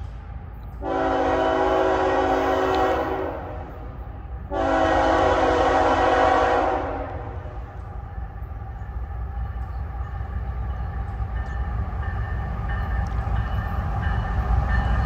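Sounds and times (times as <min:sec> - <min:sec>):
locomotive air horn blasts: 0:00.8 - 0:07.6.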